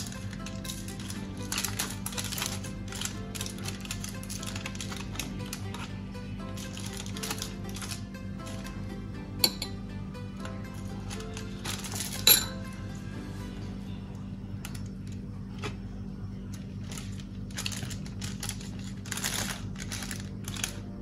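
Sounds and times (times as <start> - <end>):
aluminium foil crinkling: 0.0 - 8.8, 10.7 - 12.3, 16.5 - 21.0.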